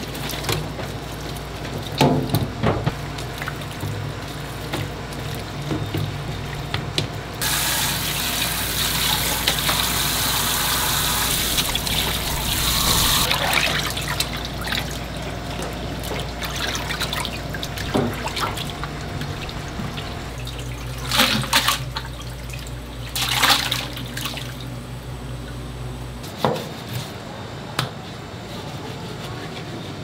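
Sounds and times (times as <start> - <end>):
steady low hum: 2.9 - 26.4
tap water running into sink: 7.4 - 14.3.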